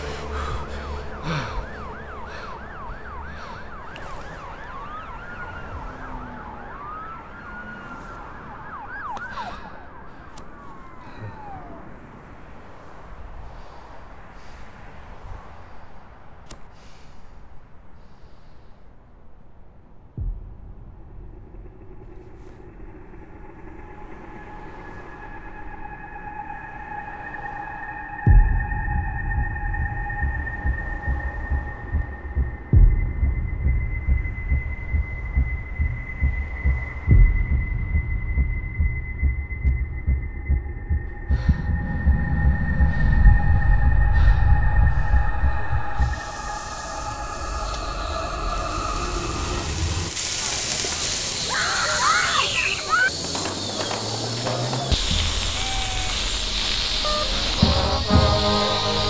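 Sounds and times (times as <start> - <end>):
traffic rumble inside car: 0.0 - 27.0, 28.2 - 59.0
low heartbeat thumps: 20.1 - 23.7, 28.2 - 49.0
background hiss: 44.3 - 59.0
high ringing tone: 56.8 - 59.0.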